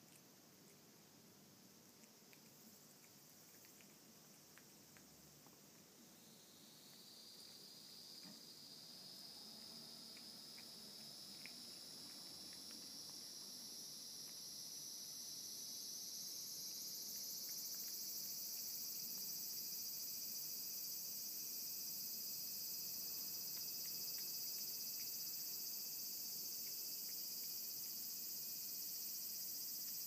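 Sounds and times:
cat eating from a plate: 0.0 - 30.0
high-pitched insect chorus: 6.2 - 30.0.

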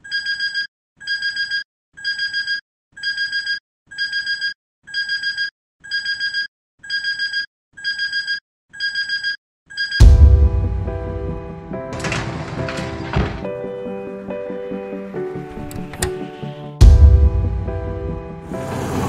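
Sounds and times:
alarm clock beeping: 0.0 - 10.2
music: 10.0 - 19.0.

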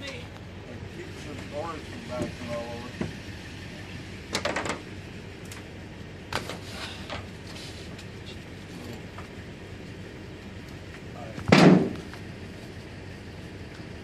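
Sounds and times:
sharp knocks and rattles: 4.3 - 4.9.

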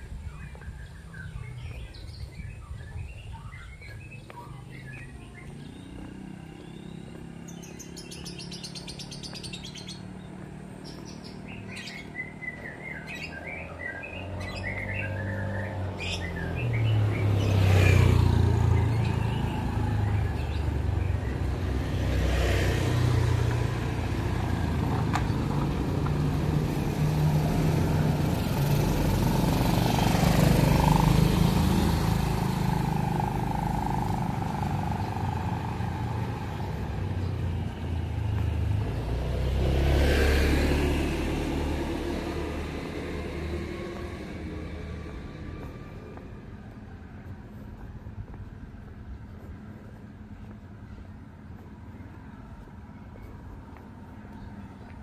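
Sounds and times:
vehicle passing loudly: 0.0 - 47.8
faint engine: 0.0 - 55.0
small birds chirping: 0.0 - 55.0
motorcycle engine: 4.6 - 46.6.

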